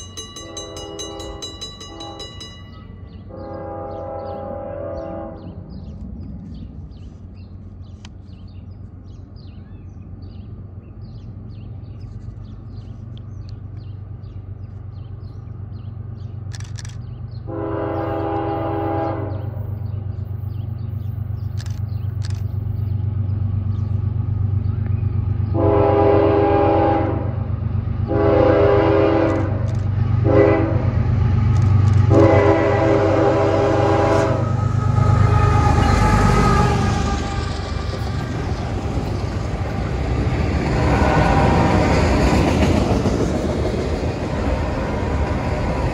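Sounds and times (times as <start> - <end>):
crossing signal bell ringing: 0.0 - 3.4
diesel locomotive rumble: 0.0 - 45.9
locomotive horn blasts: 0.4 - 5.6, 17.4 - 19.7, 25.5 - 27.4, 28.1 - 31.0, 32.0 - 37.5.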